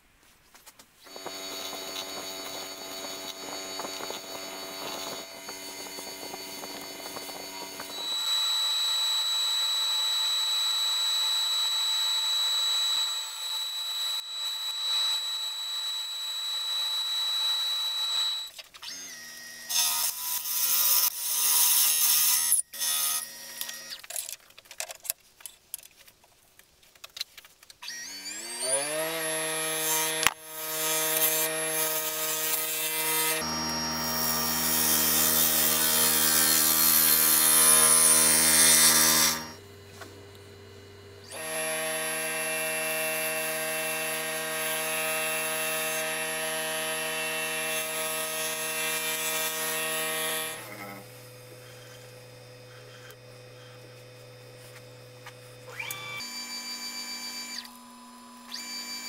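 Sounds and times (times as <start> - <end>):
wood lathe motor running: 1.1 - 19.1, 28.3 - 59.0
cordless drill running: 1.1 - 21.8, 27.8 - 59.0.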